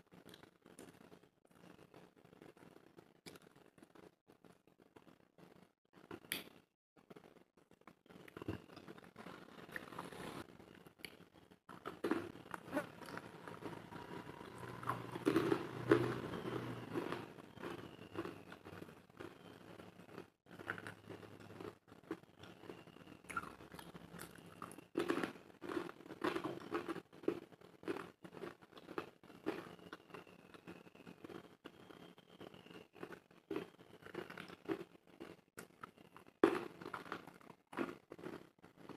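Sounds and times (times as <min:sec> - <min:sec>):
person chewing crunchy food: 0:08.0 - 0:38.9.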